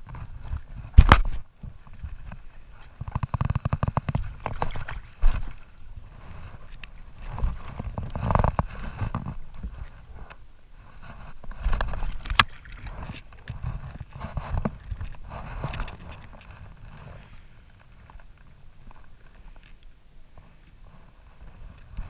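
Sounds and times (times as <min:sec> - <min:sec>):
water splashing: 0:01.3 - 0:10.2, 0:11.4 - 0:14.1.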